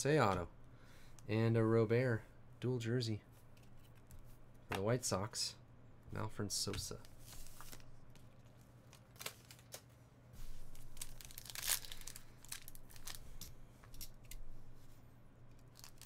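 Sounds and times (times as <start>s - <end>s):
foil wrapper crinkling and tearing: 8.9s - 9.8s, 10.6s - 13.2s, 15.6s - 16.0s.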